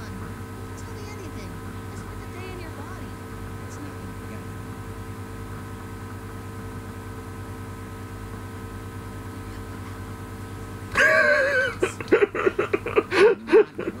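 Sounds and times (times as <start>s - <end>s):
steady low hum: 0.0s - 14.0s
man laughing: 10.9s - 14.0s.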